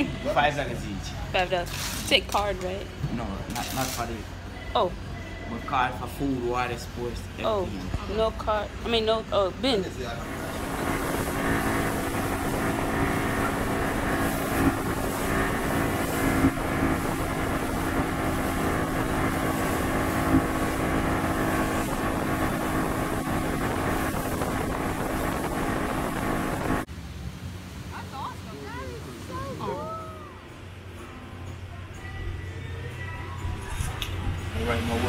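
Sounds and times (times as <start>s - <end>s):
outboard motor drone: 10.0s - 27.8s, 34.1s - 35.0s
wind on microphone: 10.2s - 26.9s.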